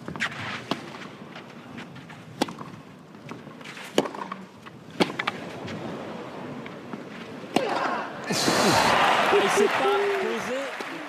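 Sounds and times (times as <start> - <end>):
racquet hitting tennis ball: 2.3 - 5.5, 7.5 - 8.0.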